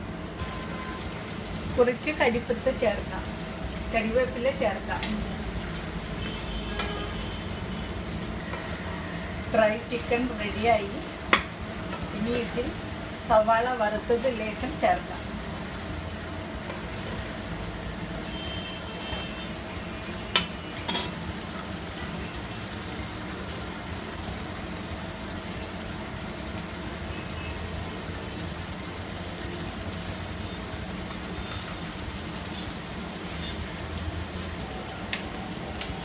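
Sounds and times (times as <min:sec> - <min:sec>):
spatula stirring food in pan: 0:04.6 - 0:35.9.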